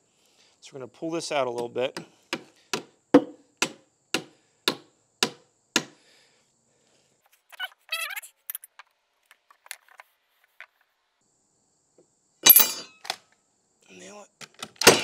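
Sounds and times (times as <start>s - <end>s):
hammer striking a board: 2.3s - 6.0s
short squeak: 7.4s - 8.6s.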